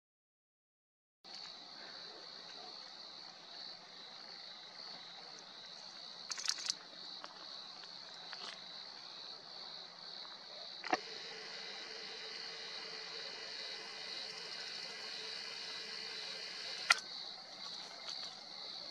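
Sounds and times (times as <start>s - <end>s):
high-pitched insect chirring: 6.3s - 6.8s, 10.8s - 18.2s.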